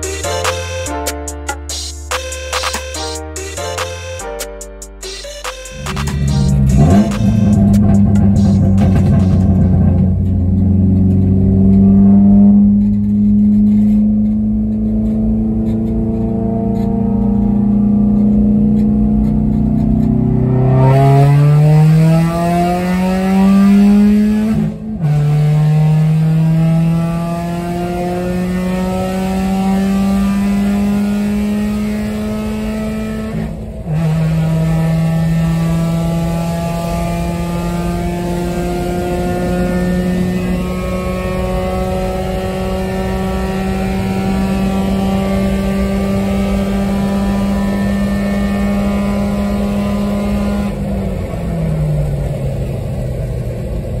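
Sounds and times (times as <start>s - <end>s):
car engine at full throttle: 5.7s - 54.0s.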